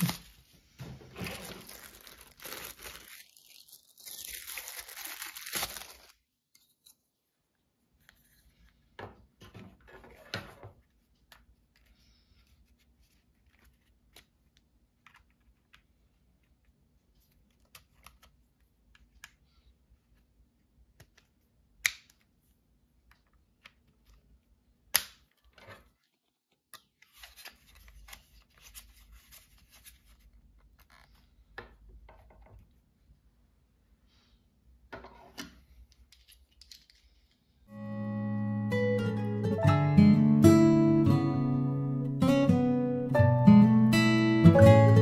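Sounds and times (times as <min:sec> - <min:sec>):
plastic rustling: 0:00.0 - 0:06.2.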